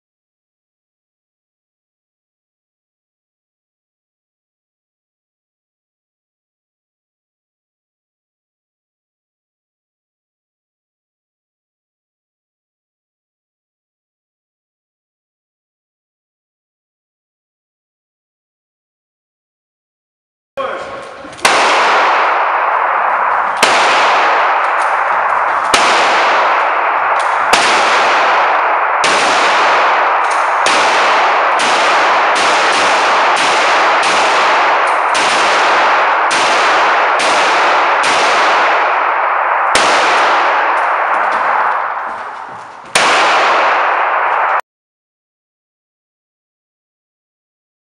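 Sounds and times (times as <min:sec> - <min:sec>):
pistol shots echoing indoors: 0:21.4 - 0:44.6.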